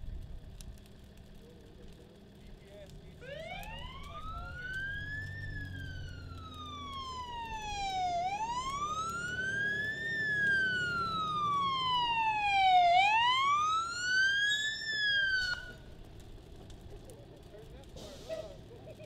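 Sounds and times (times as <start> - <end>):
emergency siren wailing: 3.2 - 16.0.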